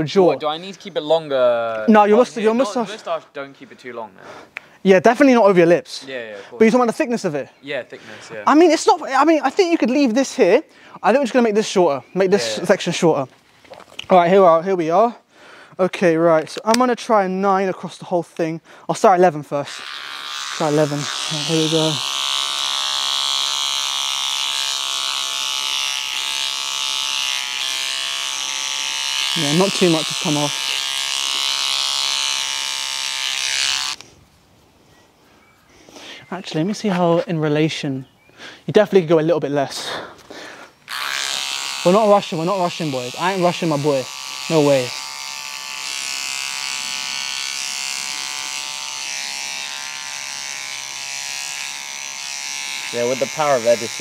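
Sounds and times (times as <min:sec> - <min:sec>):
electric beard trimmer buzzing: 0:02.0 - 0:02.9, 0:19.4 - 0:34.0, 0:40.8 - 0:54.0.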